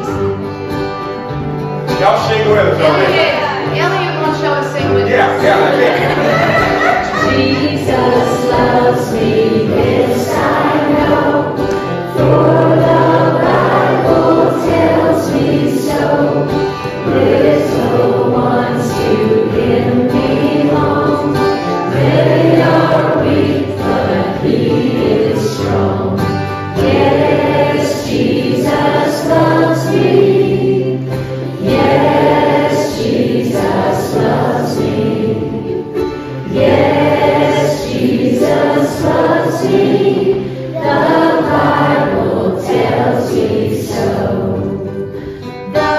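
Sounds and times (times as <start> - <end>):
children's choir singing a hymn: 0.0 - 0.5, 2.0 - 45.9
acoustic guitar: 0.0 - 45.9.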